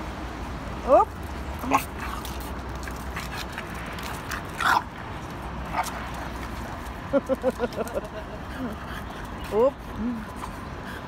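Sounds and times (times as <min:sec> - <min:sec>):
dogs vocalizing while wrestling: 0:01.6 - 0:07.0.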